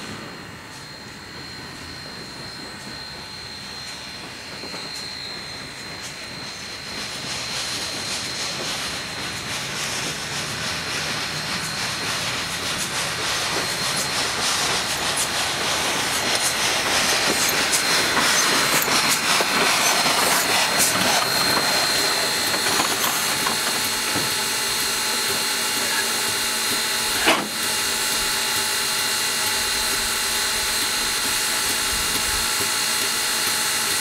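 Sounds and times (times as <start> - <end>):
steam hissing: 0.0 - 34.0.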